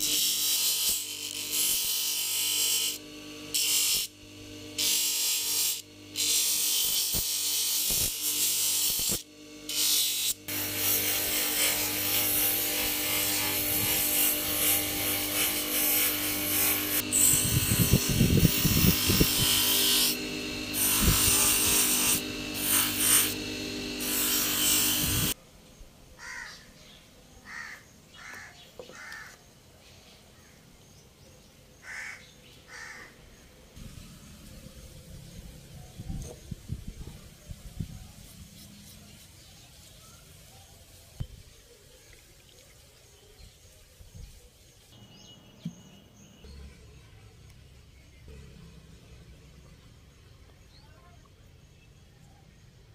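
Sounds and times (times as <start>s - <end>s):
grinding wheel rasping shell: 0.0s - 25.4s
motor hum: 0.0s - 25.4s.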